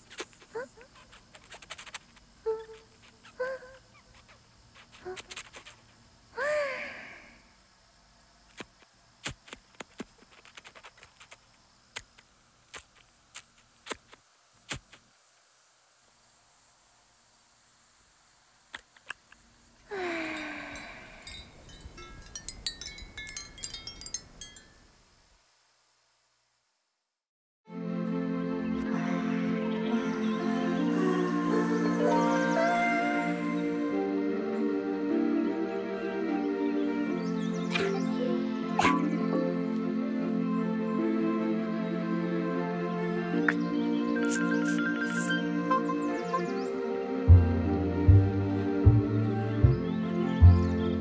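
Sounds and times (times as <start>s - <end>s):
crickets chirping: 0.0s - 27.3s, 28.8s - 47.8s
pitch-bending calls: 43.5s - 46.6s.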